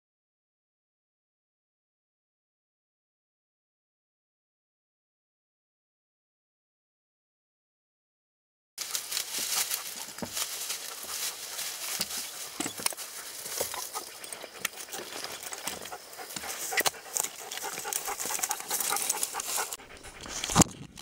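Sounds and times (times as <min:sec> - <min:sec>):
dry grass rustling: 0:08.8 - 0:20.9
footsteps on rocky ground: 0:08.8 - 0:21.0.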